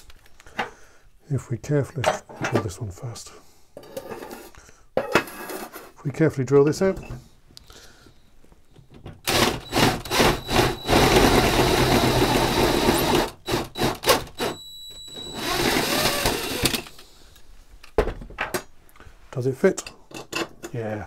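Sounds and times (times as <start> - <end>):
cordless drill cutting metal: 9.3 - 17.0.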